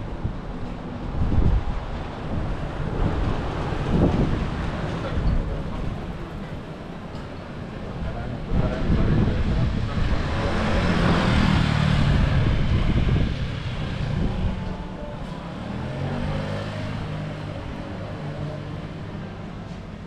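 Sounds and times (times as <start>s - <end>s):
vehicle passing by: 8.8s - 19.5s.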